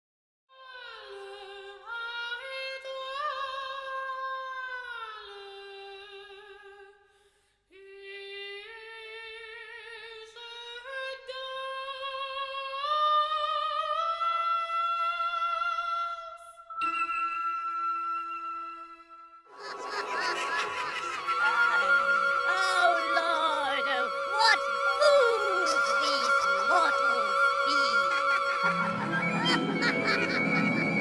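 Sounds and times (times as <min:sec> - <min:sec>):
high voice singing with vibrato: 0:19.6 - 0:30.3.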